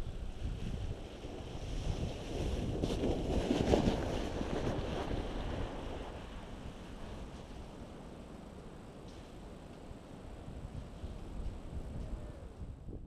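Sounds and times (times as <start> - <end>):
sled hissing over snow: 0.0 - 8.2
wind rumbling on microphone: 0.0 - 13.0.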